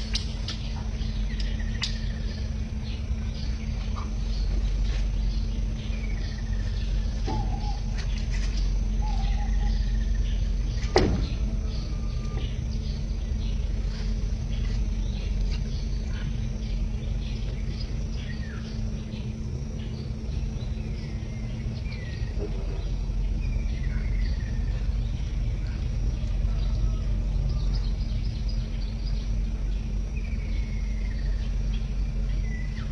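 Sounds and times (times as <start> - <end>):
birds chirping: 0.0 - 32.9
faint insect ticking: 0.0 - 32.9
steady low hum: 0.0 - 32.9.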